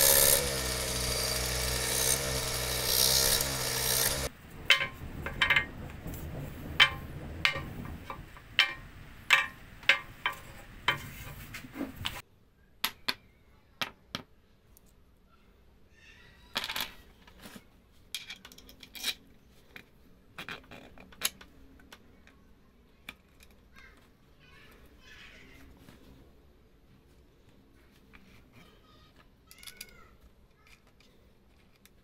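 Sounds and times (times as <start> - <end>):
wooden rims clicking and knocking: 0.0 - 12.2.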